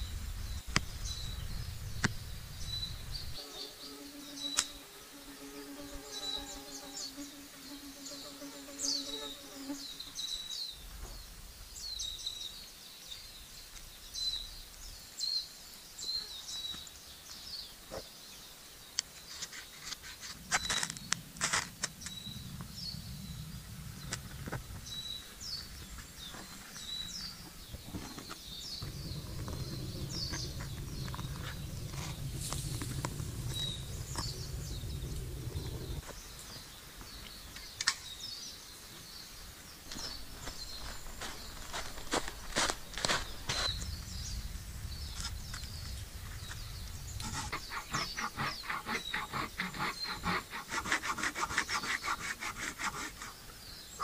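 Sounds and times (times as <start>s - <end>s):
low rumbling noise: 0.0s - 10.0s, 20.4s - 36.5s, 40.0s - 48.8s
small birds chirping: 0.0s - 54.0s
fly buzzing: 3.4s - 10.4s, 28.0s - 36.1s, 47.2s - 53.2s.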